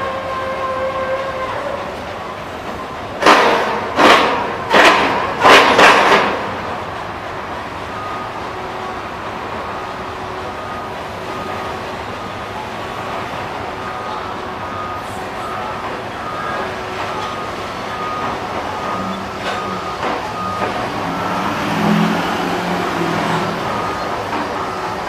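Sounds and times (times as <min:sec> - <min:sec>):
road traffic: 0:00.0 - 0:25.0
train wheels rumbling on rails: 0:00.0 - 0:25.0
vehicle engine passing: 0:20.6 - 0:24.4.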